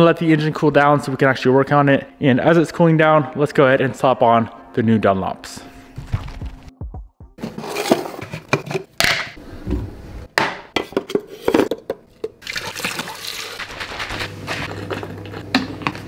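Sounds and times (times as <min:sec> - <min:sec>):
plastic canister clicks and knocks: 0:08.5 - 0:09.4
tap water running: 0:12.3 - 0:13.9.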